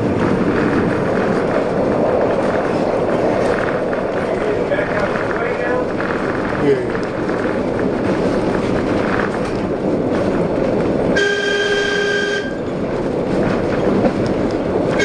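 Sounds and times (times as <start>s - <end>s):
streetcar rumbling on rails: 0.0s - 15.0s
streetcar horn blast: 11.1s - 12.7s.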